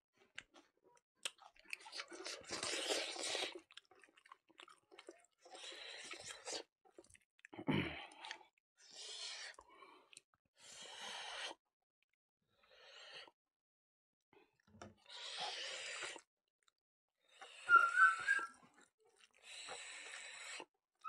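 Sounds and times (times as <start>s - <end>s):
whistling wheeze: 17.3s - 18.7s.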